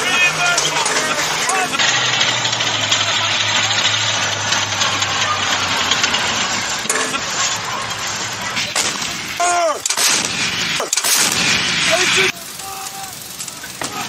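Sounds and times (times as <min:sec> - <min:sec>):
low engine hum: 0:00.0 - 0:09.4
artillery bangs: 0:00.0 - 0:14.0
gunfire: 0:08.5 - 0:14.0.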